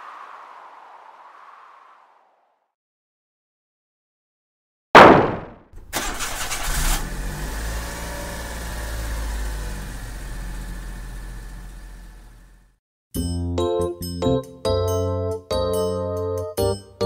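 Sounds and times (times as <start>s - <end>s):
truck engine cranking and running: 5.8s - 12.6s.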